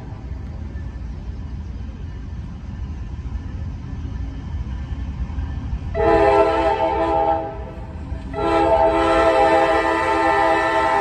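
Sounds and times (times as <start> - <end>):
locomotive air horn: 6.0 - 7.7, 8.3 - 11.0.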